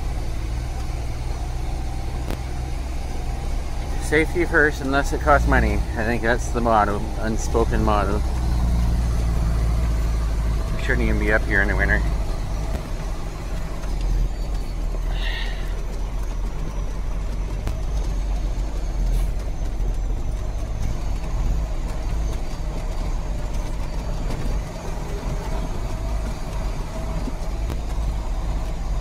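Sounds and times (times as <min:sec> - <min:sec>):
truck engine and road rumble: 0:00.0 - 0:29.0.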